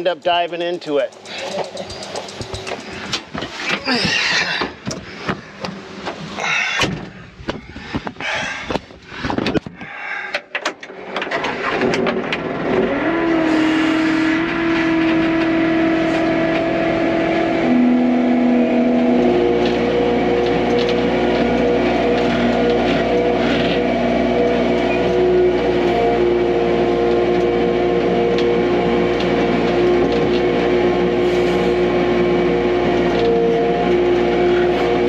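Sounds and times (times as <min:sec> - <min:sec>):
vehicle engine from inside cab: 0:11.9 - 0:35.0.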